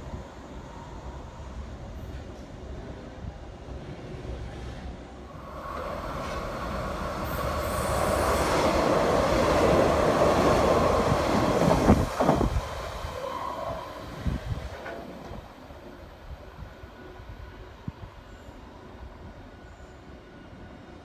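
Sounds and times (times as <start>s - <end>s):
train wheels rumbling on rails: 1.4s - 18.2s.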